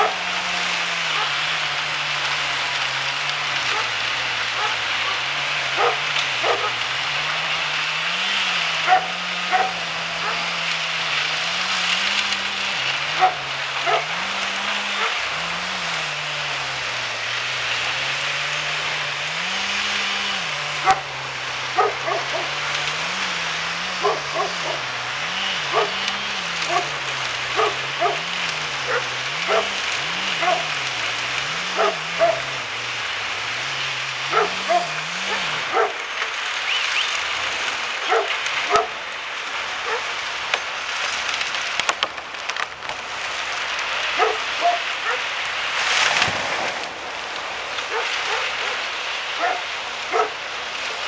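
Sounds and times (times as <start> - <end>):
dog barking: 0.0 - 0.2, 1.1 - 1.5, 3.6 - 6.8, 8.8 - 10.6, 13.1 - 14.3, 14.9 - 15.2, 20.8 - 21.1, 21.7 - 22.6, 23.9 - 24.9, 25.6 - 30.8, 31.6 - 32.6, 34.3 - 36.3, 38.0 - 39.0, 39.8 - 40.2, 44.1 - 45.3, 47.9 - 50.4
machinery drone: 0.0 - 51.0.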